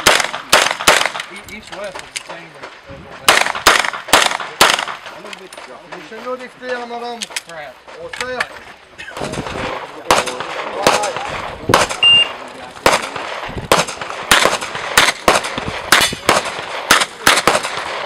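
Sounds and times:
handgun shots: 0.0 - 1.3, 12.8 - 18.0.

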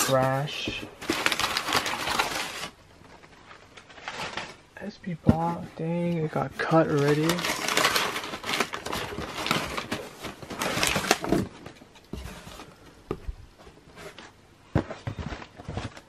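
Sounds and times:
packing paper rustling and crinkling: 0.0 - 12.8, 13.6 - 16.0
cardboard scraping: 6.6 - 12.8.

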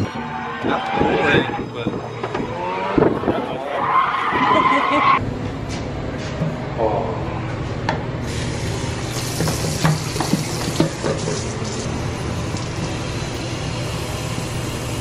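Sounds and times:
tap water filling plastic bottle: 9.1 - 11.8.

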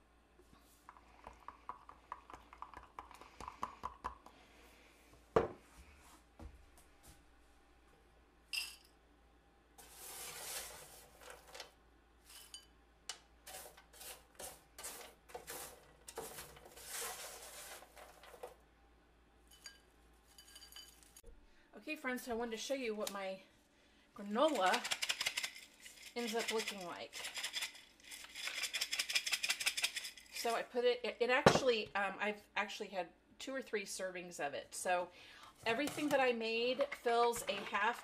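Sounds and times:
sharp glass clink: 8.5 - 8.9.

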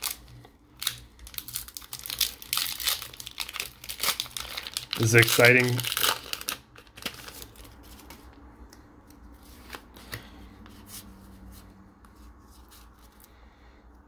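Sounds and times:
cards clicking and rustling: 0.0 - 10.7.

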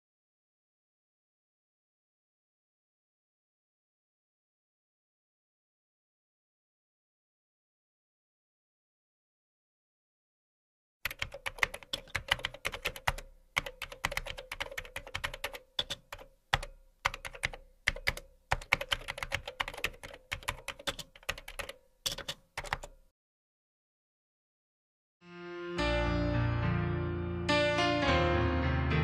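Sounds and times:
keyboard typing: 11.0 - 23.0.

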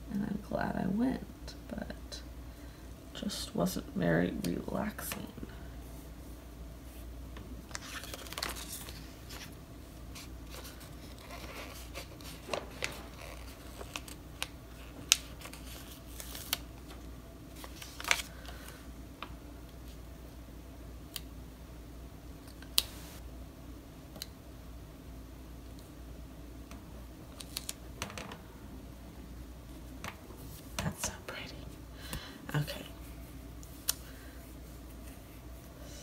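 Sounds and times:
paper rustling: 7.7 - 18.8.

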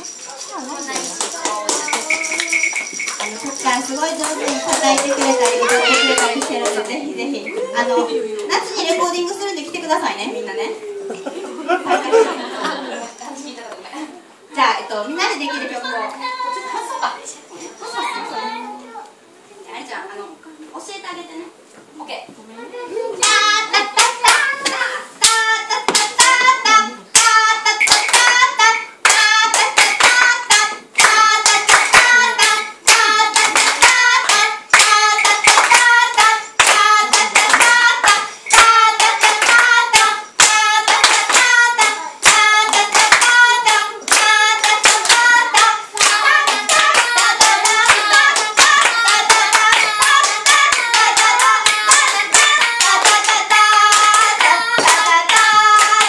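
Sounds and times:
rhythmic hand clapping: 0.0 - 7.1, 23.2 - 56.0
voices singing a chant: 23.2 - 56.0.

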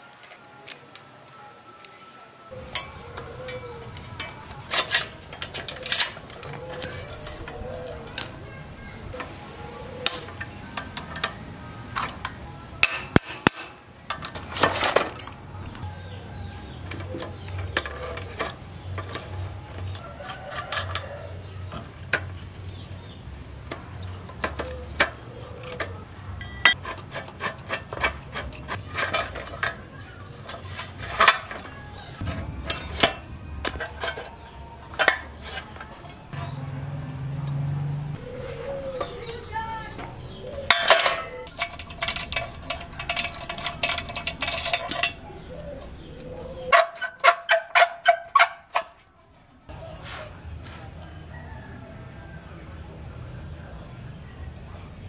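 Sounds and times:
metal clinks and rattles: 2.7 - 8.2, 40.7 - 45.5.

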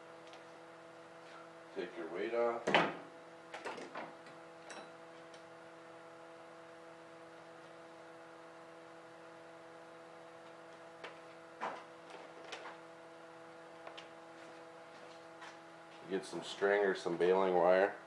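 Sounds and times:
steady electrical hum: 0.0 - 18.0.

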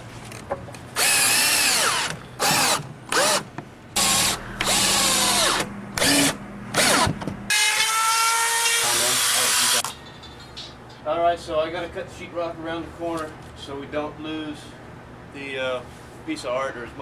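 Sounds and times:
cordless drill bursts: 1.0 - 9.8.

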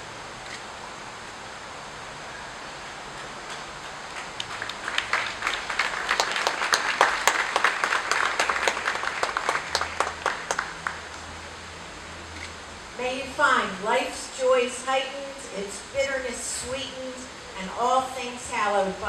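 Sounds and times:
crowd applauding: 3.5 - 11.4.

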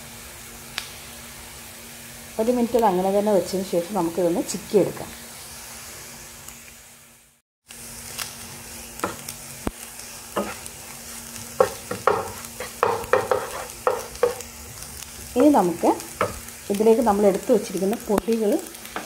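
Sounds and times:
food sizzling in a frying pan: 0.0 - 19.0
wooden spatula scraping a pan: 10.3 - 15.6.

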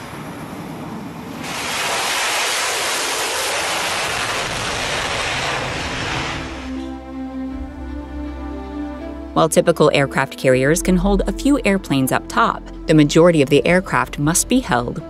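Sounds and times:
jet engines at full power: 0.0 - 6.9.

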